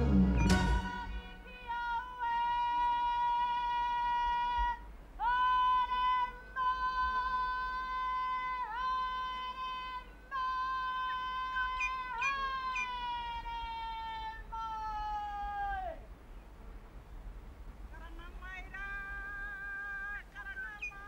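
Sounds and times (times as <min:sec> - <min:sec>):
woman's high ceremonial call: 0:00.0 - 0:16.0.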